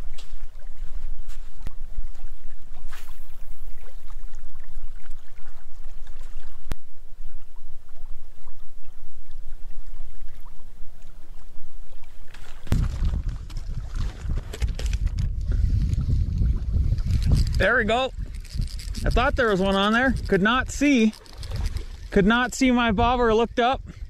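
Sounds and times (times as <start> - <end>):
wind buffeting microphone: 11.3 - 24.0.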